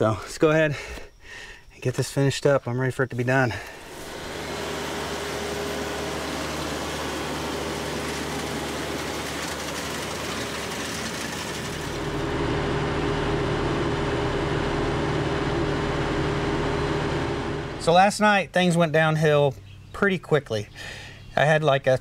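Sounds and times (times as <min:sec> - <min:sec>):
tractor engine running: 0:03.7 - 0:18.2.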